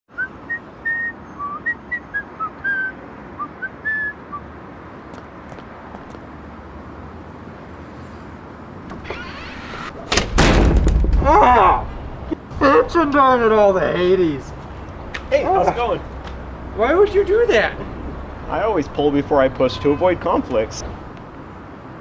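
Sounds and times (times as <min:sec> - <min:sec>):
person whistling a tune: 0:00.1 - 0:04.4.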